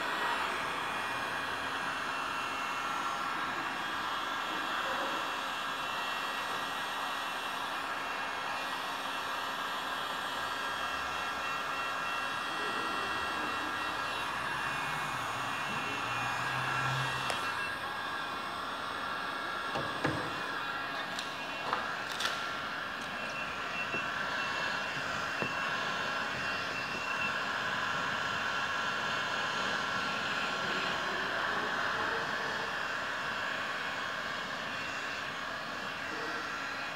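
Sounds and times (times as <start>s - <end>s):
heat gun blowing hot air: 0.0s - 36.9s.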